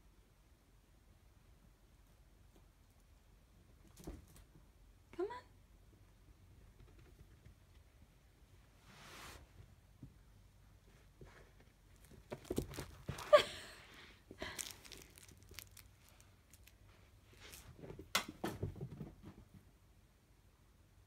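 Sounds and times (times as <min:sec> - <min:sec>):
kitten playing with rustling toy: 0:11.2 - 0:18.1.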